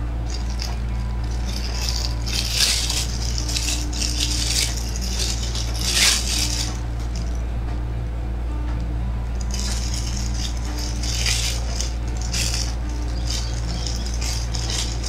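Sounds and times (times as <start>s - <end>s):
low electrical hum: 0.0s - 15.0s
plastic bag crinkling: 0.3s - 6.8s, 9.5s - 15.0s.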